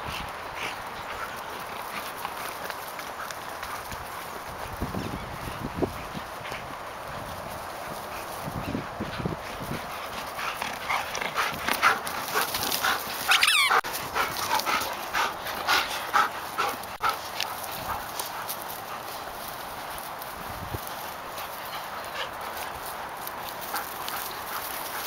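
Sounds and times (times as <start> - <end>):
dogs whining and yipping: 13.2 - 13.9.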